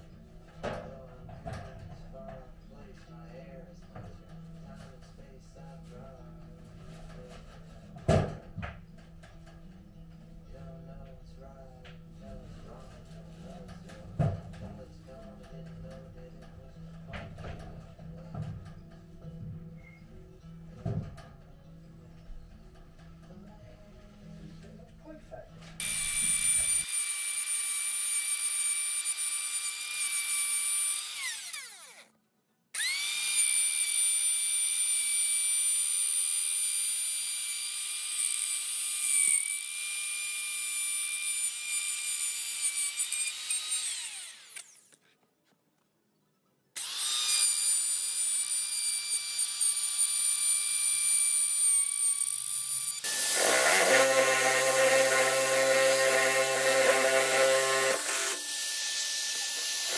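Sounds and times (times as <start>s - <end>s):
electric drill boring wood: 25.8s - 32.1s, 32.8s - 45.0s, 46.8s - 59.9s
router whining: 25.8s - 32.1s, 32.8s - 45.0s, 46.8s - 59.9s.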